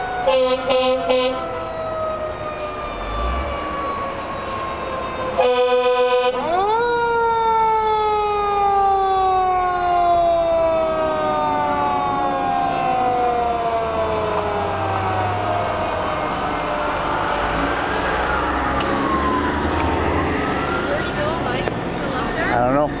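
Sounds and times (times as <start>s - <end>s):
fire engine siren: 0.0s - 23.0s
air horn blast: 0.2s - 1.4s, 5.4s - 6.5s.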